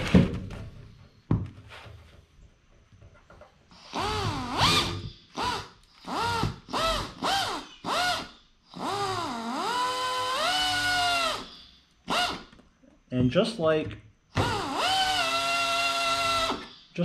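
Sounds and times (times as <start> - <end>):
drill motor whining: 3.7 - 12.6, 14.3 - 16.8.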